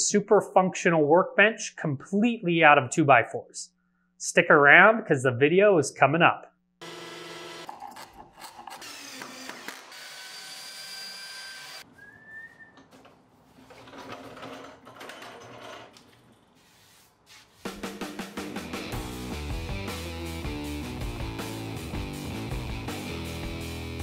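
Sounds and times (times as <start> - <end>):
thickness planer running: 6.8 - 7.7
knocks and rattles: 12.9 - 16.0.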